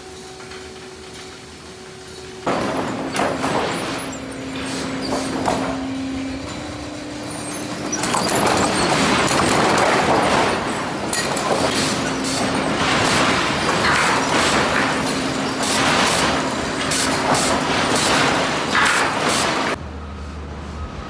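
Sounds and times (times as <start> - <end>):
mechanical hum of machinery: 0.0 - 21.0
boards clattering and knocking: 2.5 - 5.9, 7.9 - 19.8.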